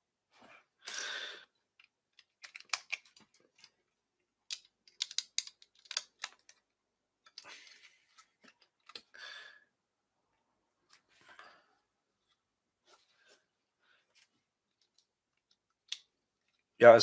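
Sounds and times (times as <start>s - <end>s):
plastic bricks clicking: 1.8s - 3.7s, 4.4s - 6.6s.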